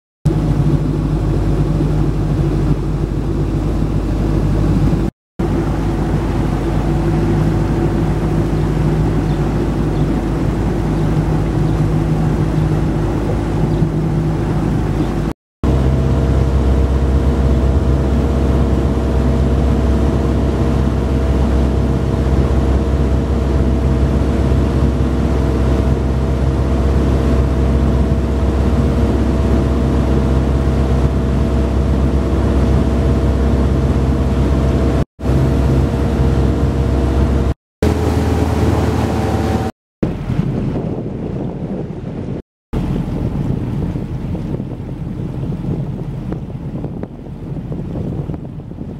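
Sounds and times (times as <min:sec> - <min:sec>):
motorboat engine humming: 0:00.3 - 0:48.9.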